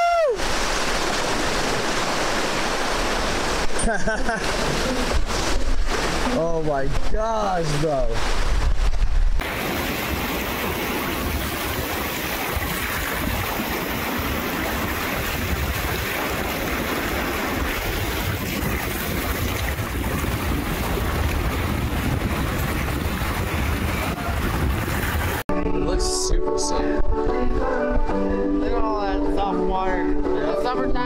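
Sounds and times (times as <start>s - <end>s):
whitewater rushing: 0.0s - 8.7s, 9.4s - 25.4s
wind buffeting microphone: 4.6s - 25.7s.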